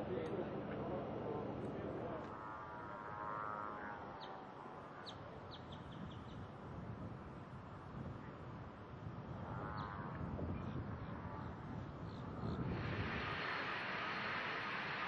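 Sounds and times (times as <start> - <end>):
faint outdoor noise: 0.0 - 15.0.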